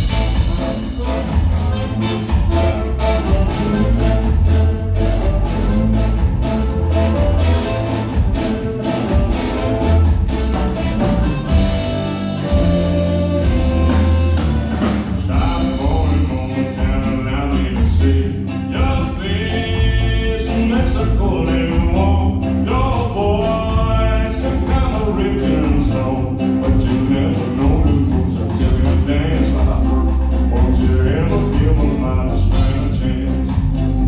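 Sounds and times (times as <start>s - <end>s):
harmonica lead: 0.0s - 17.1s
live band playing ska: 0.0s - 34.0s.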